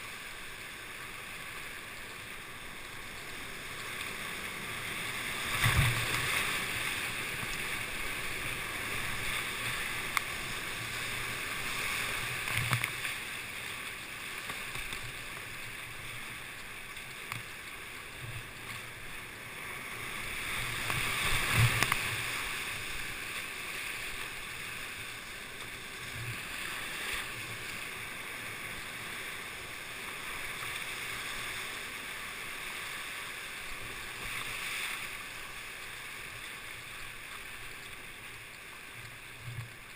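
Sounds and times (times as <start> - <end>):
water splashes: 0.0 - 39.9
whitewater rapid rushing: 0.0 - 39.9
paddle strokes: 2.7 - 39.9
dull thumps of waves: 5.4 - 6.8.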